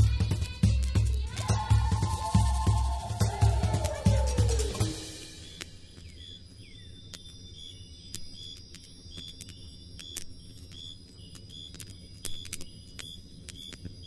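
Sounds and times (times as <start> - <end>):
campfire crackling and popping: 0.0 - 6.2
crickets chirping: 1.2 - 14.0.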